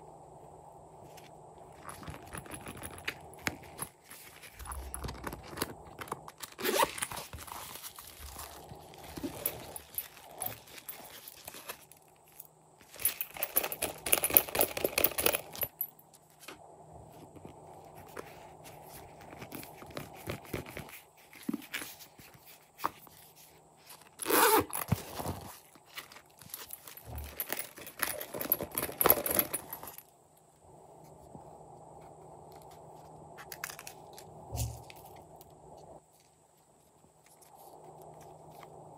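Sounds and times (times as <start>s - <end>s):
plastic pouch crinkling: 1.9s - 12.3s
pouch being pulled open: 4.1s - 11.9s, 24.1s - 25.8s.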